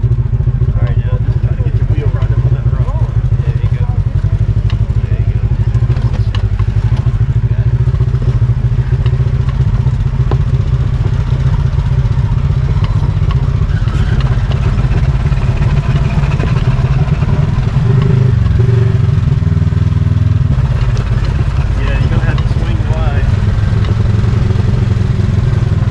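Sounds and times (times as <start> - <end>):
vehicle engine running: 0.0 - 25.9
vehicle knocks and rattles: 0.0 - 25.9.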